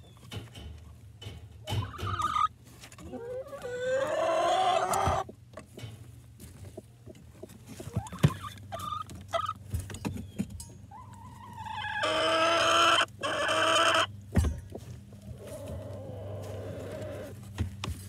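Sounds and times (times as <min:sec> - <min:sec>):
hens clucking: 0:00.0 - 0:09.8, 0:10.9 - 0:17.6
knocks and scratches in nesting box: 0:04.8 - 0:10.5, 0:17.0 - 0:18.0.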